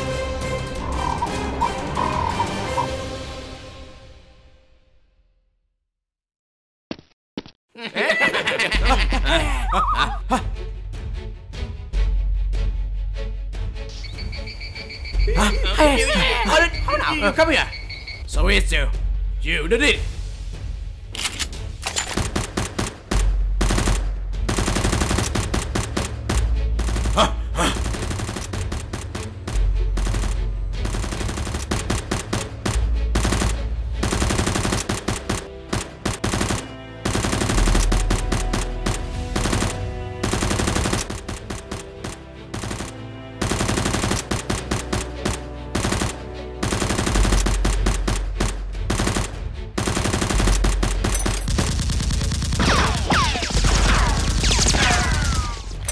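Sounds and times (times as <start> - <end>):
automatic gunfire sound effects: 22.0 - 29.2, 29.9 - 55.8.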